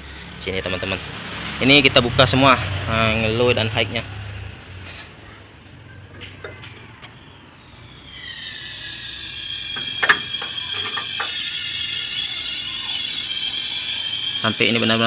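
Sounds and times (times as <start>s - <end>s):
refrigerant hissing with whistling tones: 7.2s - 15.0s.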